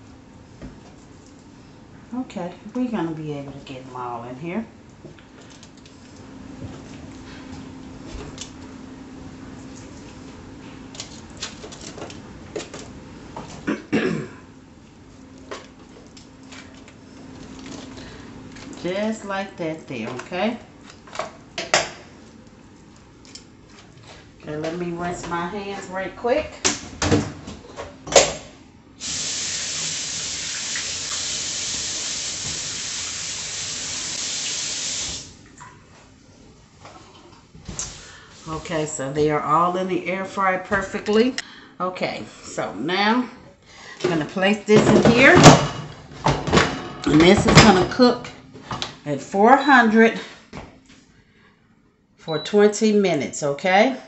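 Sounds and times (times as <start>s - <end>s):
aluminium foil crinkling: 10.9s - 12.8s
faucet running: 29.0s - 35.4s.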